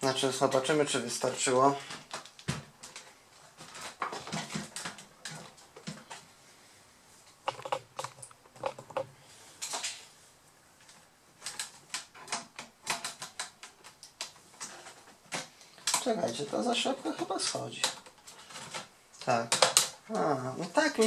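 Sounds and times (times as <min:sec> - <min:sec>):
plastic laptop case clicking: 0:07.4 - 0:09.1, 0:11.4 - 0:16.1, 0:19.5 - 0:20.0.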